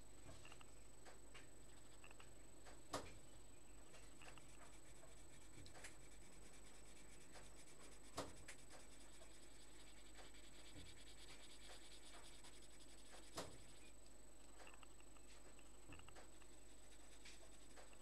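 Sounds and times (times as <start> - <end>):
pencil scratching on paper: 4.0 - 14.0, 15.9 - 18.0.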